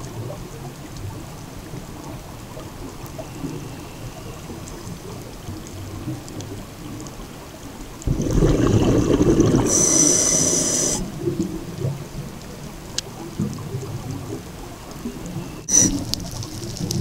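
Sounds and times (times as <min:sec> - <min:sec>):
exhaled bubbles rumbling underwater: 0:00.0 - 0:17.0
regulator hiss: 0:09.7 - 0:11.1.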